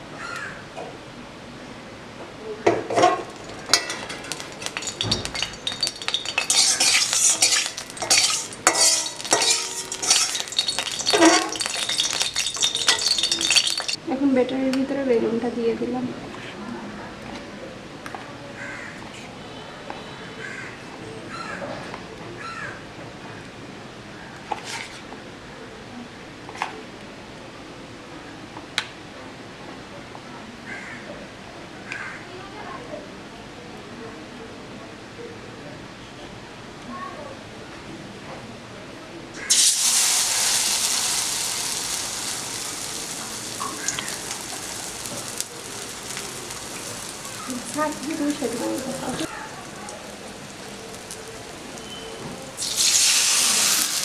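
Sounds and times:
crow cawing: 0.2s - 0.6s, 18.6s - 19.0s, 20.4s - 20.8s, 22.4s - 22.8s, 30.7s - 31.1s, 31.9s - 32.2s
eggplant sizzling in hot oil: 3.6s - 14.0s, 39.4s - 54.0s.

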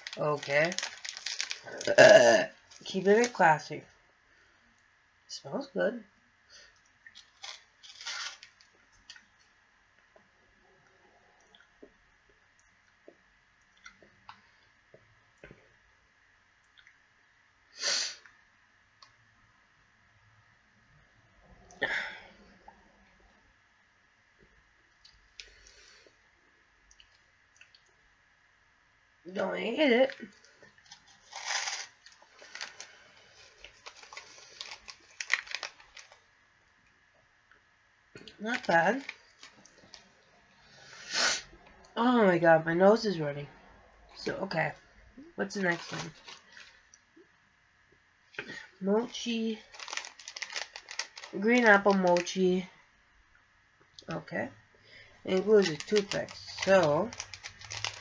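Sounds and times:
small crunches: 0.0s - 3.3s, 7.0s - 9.2s, 30.6s - 36.2s, 45.7s - 47.0s, 49.6s - 52.4s, 55.3s - 58.0s
plastic wrapper handling: 0.0s - 3.5s, 7.1s - 9.2s, 30.8s - 36.2s, 38.4s - 40.1s, 45.6s - 47.0s, 49.1s - 52.5s, 55.3s - 58.0s.

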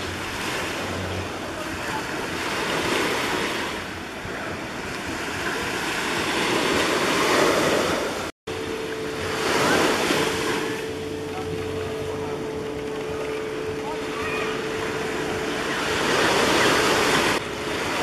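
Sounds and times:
waves breaking on beach: 0.0s - 18.0s
steady low hum: 8.5s - 18.0s.

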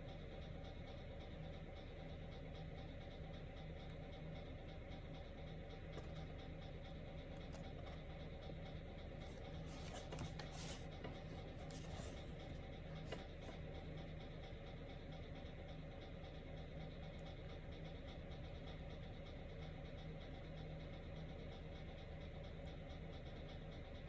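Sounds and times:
low room hum: 0.0s - 24.0s
book pages turning: 9.6s - 12.3s.

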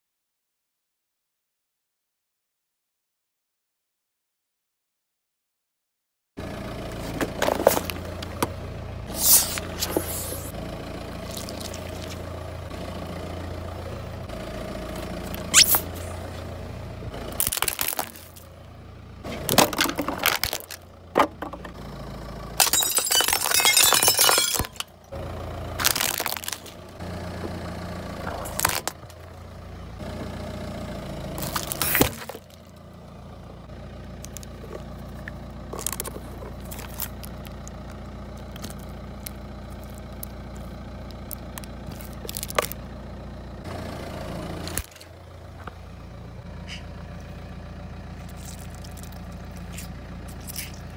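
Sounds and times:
car engine running low: 6.4s - 50.9s
car tyre crushing objects: 6.9s - 12.7s, 14.9s - 30.4s, 31.1s - 43.4s, 44.1s - 50.9s.

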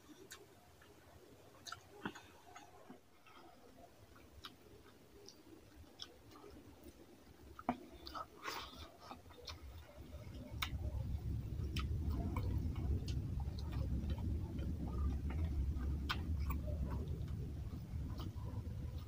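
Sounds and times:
low steady rumble: 0.0s - 19.0s
wet chewing smacks: 0.0s - 19.0s.

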